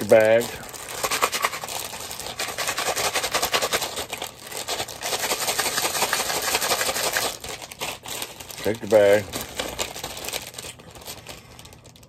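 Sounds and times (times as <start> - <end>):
dry pieces rattling in a bag: 0.0 - 12.0
plastic wrapper crinkling: 0.0 - 12.0.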